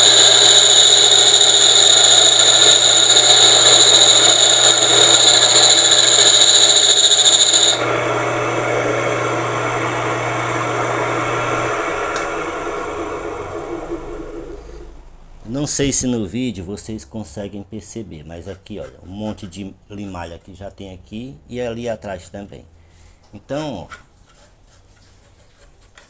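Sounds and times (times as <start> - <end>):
tool squealing on spinning metal: 0.0 - 7.8
electric motor humming: 0.0 - 15.0.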